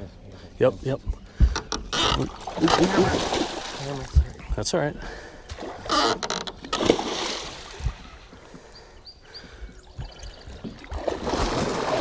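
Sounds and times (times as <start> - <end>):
water sloshing: 1.2 - 4.5, 5.1 - 8.7, 9.5 - 12.0
fish thrashing and splashing: 2.2 - 4.2, 5.6 - 8.0, 10.8 - 12.0.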